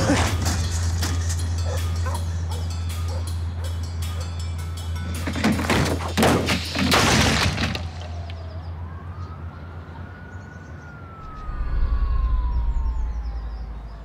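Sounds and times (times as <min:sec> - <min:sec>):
siren wailing: 0:07.8 - 0:14.0
steady low drone: 0:11.0 - 0:14.0.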